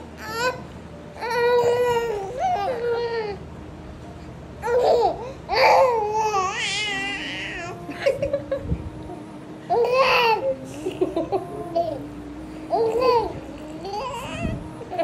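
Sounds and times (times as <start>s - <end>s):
baby cooing and laughing: 1.2s - 3.4s, 4.6s - 8.2s, 9.7s - 12.1s, 12.7s - 15.0s
woman laughing softly: 7.8s - 8.9s, 10.4s - 12.0s.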